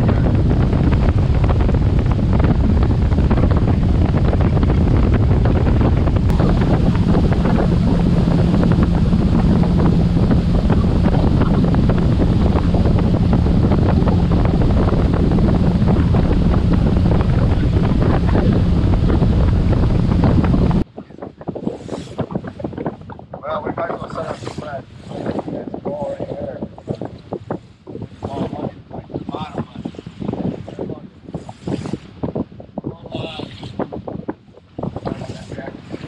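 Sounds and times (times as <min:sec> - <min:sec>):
outboard motor running: 0:00.0 - 0:20.8
water rushing in wake: 0:00.0 - 0:20.9
wind buffeting microphone: 0:00.0 - 0:36.0.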